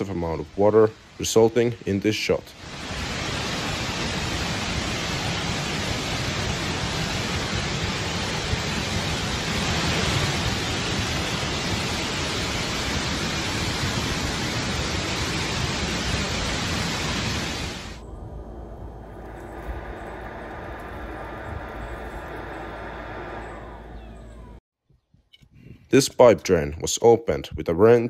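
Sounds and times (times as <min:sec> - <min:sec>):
floodwater rushing from dam: 0:02.5 - 0:18.0.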